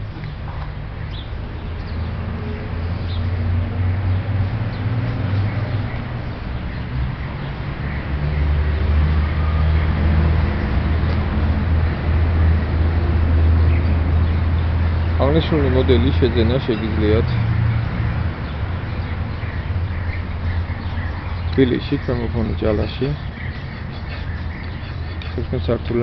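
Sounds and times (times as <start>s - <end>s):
vehicle engine rumbling: 0.0s - 26.0s
bird chirps: 13.6s - 26.0s.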